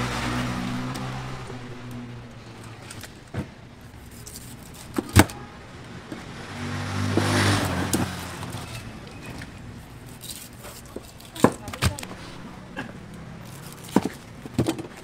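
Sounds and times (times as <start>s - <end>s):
vehicle engine passing: 0.0s - 2.7s, 5.9s - 9.8s.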